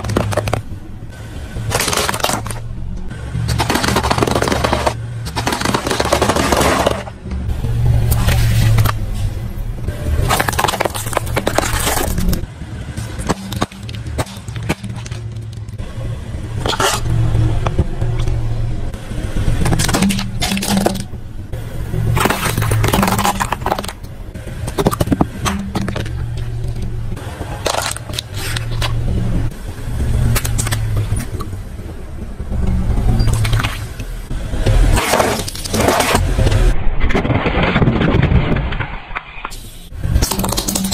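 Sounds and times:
plastic cracking under tyre: 0:00.0 - 0:00.7, 0:01.7 - 0:02.6, 0:03.5 - 0:07.1, 0:10.3 - 0:12.4
car engine hum: 0:00.0 - 0:36.9.

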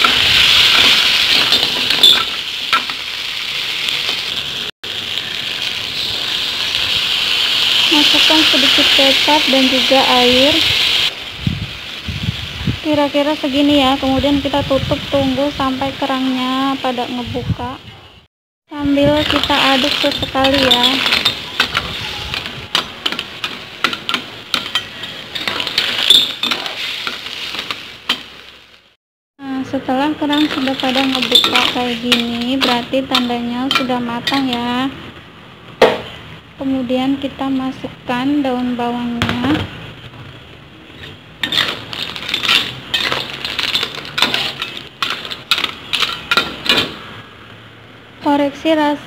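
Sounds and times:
clam shells clinking in a wok: 0:00.0 - 0:03.0, 0:19.0 - 0:28.3, 0:30.2 - 0:34.8, 0:41.4 - 0:47.0
clams sizzling in a wok: 0:00.0 - 0:17.5, 0:18.8 - 0:35.8, 0:37.0 - 0:47.8
spatula scraping a pan: 0:19.2 - 0:28.3.

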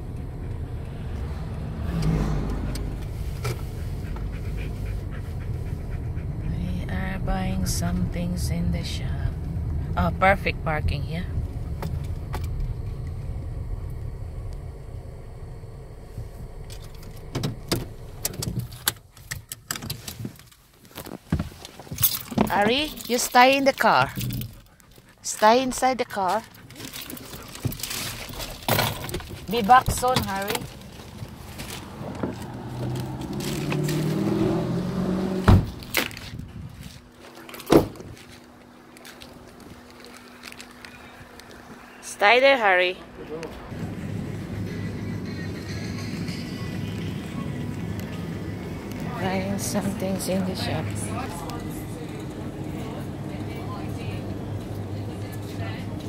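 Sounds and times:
car engine and road rumble: 0:00.0 - 0:56.0
car door slamming: 0:35.3 - 0:36.0, 0:37.7 - 0:38.1.

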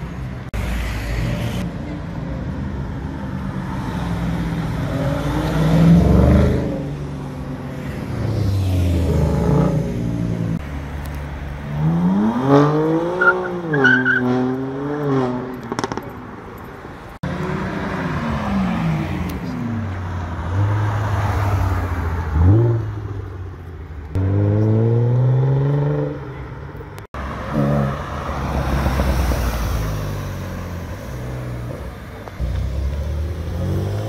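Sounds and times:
cars accelerating past: 0:03.5 - 0:10.6, 0:27.1 - 0:34.0.

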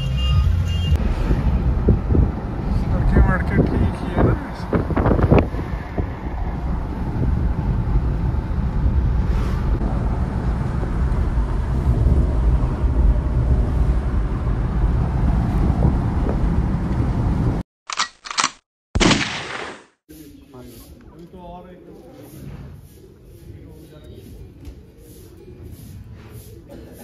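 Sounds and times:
vehicle rumble: 0:00.0 - 0:18.5
wind buffeting microphone: 0:01.0 - 0:17.6.

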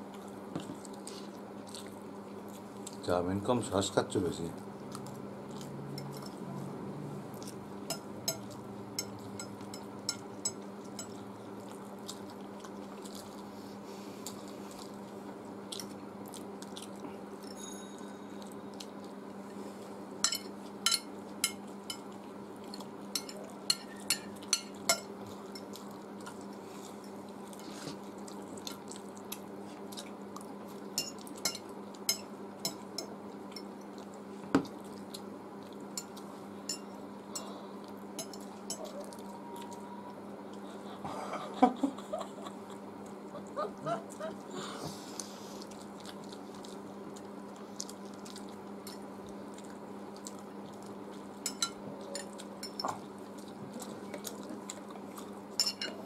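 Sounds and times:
chewing noodles: 0:00.0 - 0:03.0, 0:04.8 - 0:06.6, 0:10.6 - 0:17.5, 0:21.7 - 0:32.1, 0:42.4 - 0:56.0
steady low hum: 0:00.0 - 0:56.0
fork clinking on glass plates: 0:07.9 - 0:11.2, 0:20.2 - 0:22.1, 0:23.1 - 0:25.8, 0:31.0 - 0:33.7, 0:36.0 - 0:37.5, 0:38.2 - 0:38.9, 0:51.4 - 0:53.0, 0:55.6 - 0:56.0.

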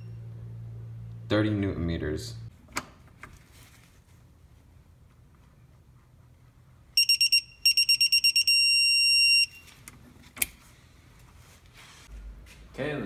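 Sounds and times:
torque wrench beeping: 0:07.0 - 0:09.7.

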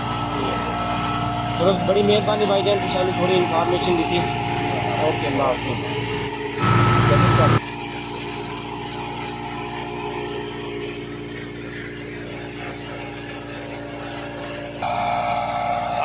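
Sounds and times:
thresher machine drone: 0:00.0 - 0:16.0
tractor engine: 0:00.0 - 0:16.0.

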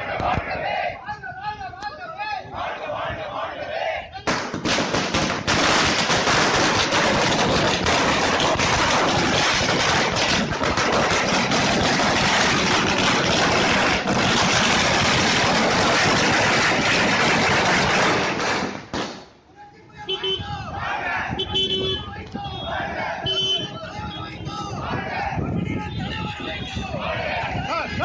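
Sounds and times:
firecrackers bursting: 0:04.2 - 0:19.4.

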